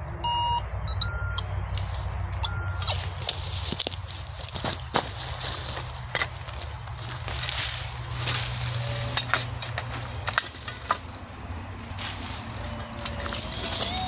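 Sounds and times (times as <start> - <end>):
twigs snapping: 1.7 - 11.3
boots crunching soil and leaves: 1.7 - 14.0.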